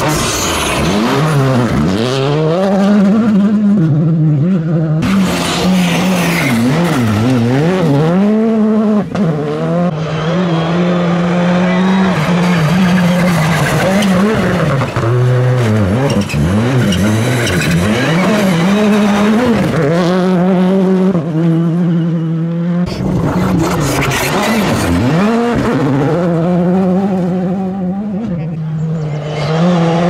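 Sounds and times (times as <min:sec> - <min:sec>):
gravel spray and tyre noise: 0:00.0 - 0:02.4, 0:05.0 - 0:08.2, 0:09.0 - 0:21.0, 0:22.9 - 0:27.0
rally car engines revving: 0:00.0 - 0:30.0.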